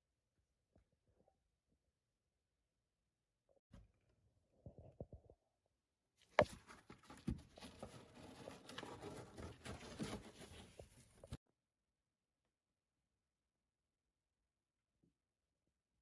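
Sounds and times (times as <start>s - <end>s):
cardboard rustling and scraping: 6.3s - 11.4s.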